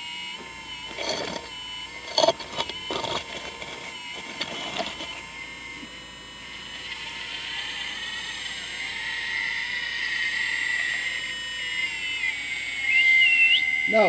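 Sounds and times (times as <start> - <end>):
hydraulic pump whining: 0.0 - 6.0.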